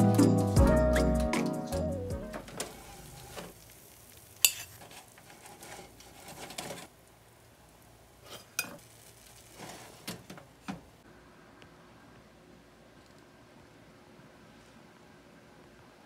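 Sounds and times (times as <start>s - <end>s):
metal oven door opening and shutting: 2.2s - 3.5s, 5.4s - 6.9s.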